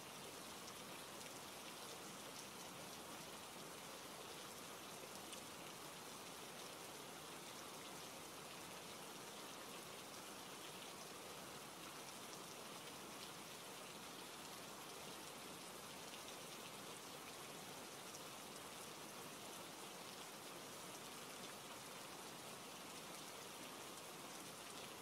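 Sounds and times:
steady rain hiss: 0.0 - 25.0.

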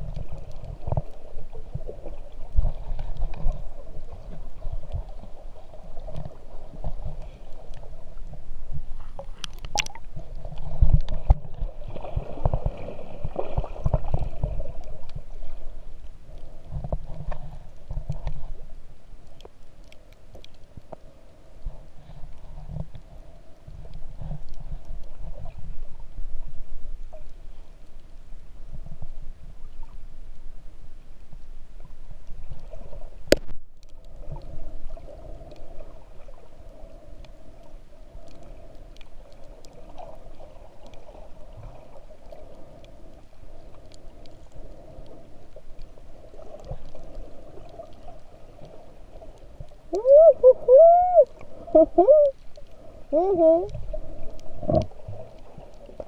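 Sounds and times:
faint steady hum: 0.0 - 56.0
underwater water rumble: 0.0 - 56.0
wavering underwater tones: 49.9 - 52.4, 53.1 - 53.8.

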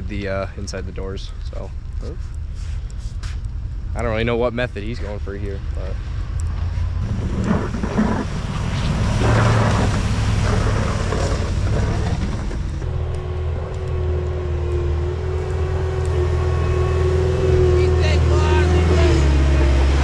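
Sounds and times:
truck plowing slush: 6.7 - 20.0
skid steer engine under load: 7.0 - 17.6.

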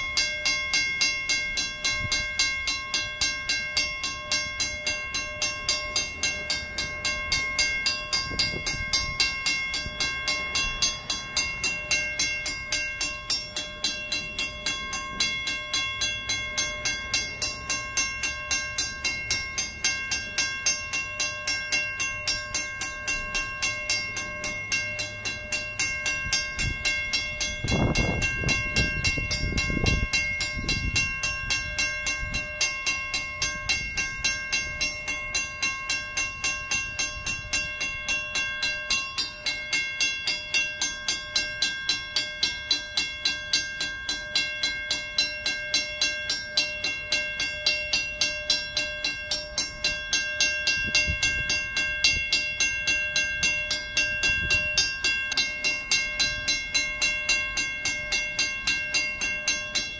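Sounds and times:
freight cars rumbling: 0.0 - 43.0
crossing bell ringing: 0.0 - 59.9.

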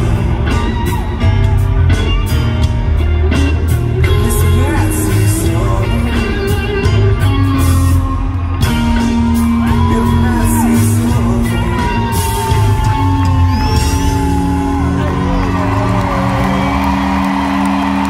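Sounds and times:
male lead vocal: 0.0 - 0.8, 4.0 - 8.0, 9.5 - 17.0
live rock band playing: 0.0 - 18.0.

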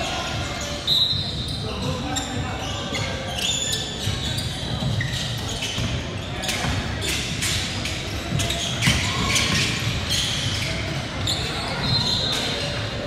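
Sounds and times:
crowd voices: 0.0 - 13.0
shoe squeaks: 0.0 - 13.0
ball bouncing on court: 4.0 - 11.4.

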